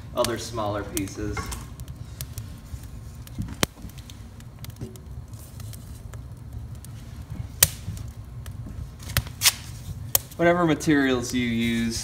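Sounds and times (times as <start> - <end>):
fire crackling and popping: 0.0 - 12.0
low steady rumble: 0.0 - 12.0
sharp wood crack: 7.6 - 10.4.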